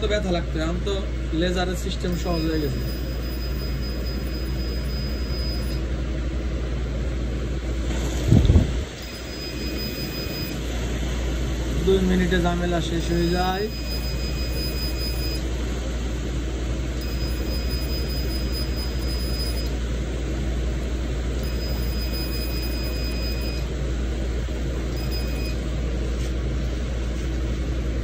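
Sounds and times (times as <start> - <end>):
machine humming and hissing: 0.0 - 28.0
electronic tone: 2.1 - 5.9, 9.0 - 10.6, 13.1 - 15.4, 17.0 - 19.8, 21.4 - 23.7, 24.9 - 25.6.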